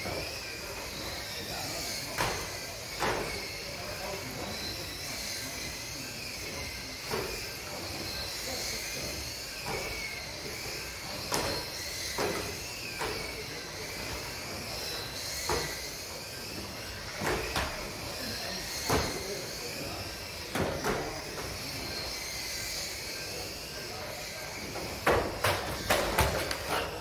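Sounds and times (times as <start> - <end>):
electric motors whining: 0.0 - 27.0.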